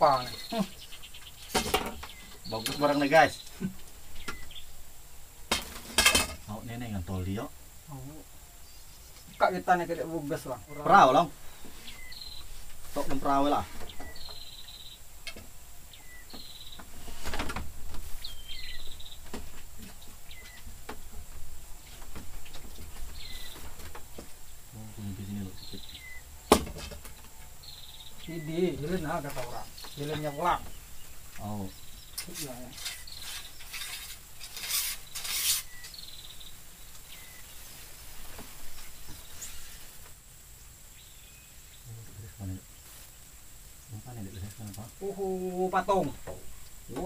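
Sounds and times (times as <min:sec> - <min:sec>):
insects and birds calling: 0:00.0 - 0:47.0
rustling scrape with light knocks: 0:05.5 - 0:06.5, 0:16.7 - 0:24.4, 0:32.2 - 0:35.9, 0:37.5 - 0:40.2.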